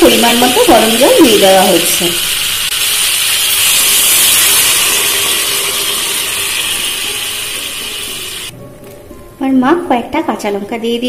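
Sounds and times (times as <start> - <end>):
hot oil hissing and sizzling: 0.0 - 8.5.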